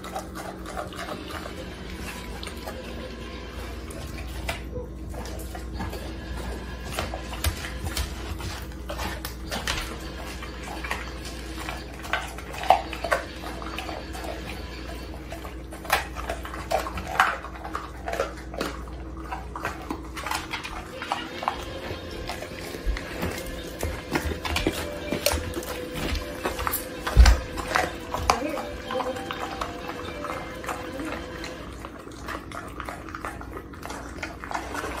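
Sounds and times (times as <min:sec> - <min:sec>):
dog chewing and crunching bones: 0:00.0 - 0:35.0.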